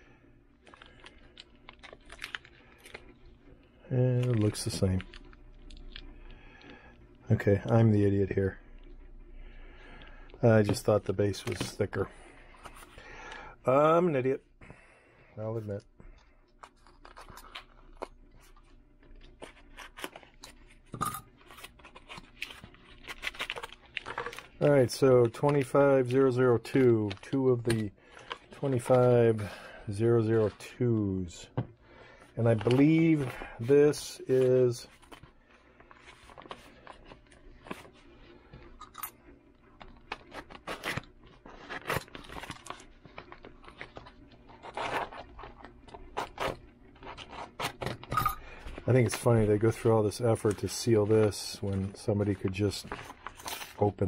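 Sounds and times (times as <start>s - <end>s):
paper mailer crinkling: 32.0s - 38.5s, 39.8s - 54.0s.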